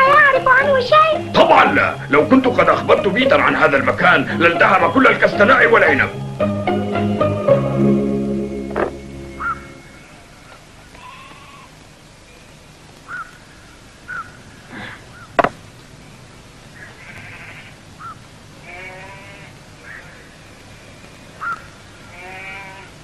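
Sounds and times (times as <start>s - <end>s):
goats bleating: 9.4s - 11.8s, 16.8s - 17.8s, 18.6s - 19.6s, 22.1s - 23.0s
stone clacking on stone: 15.4s - 15.6s.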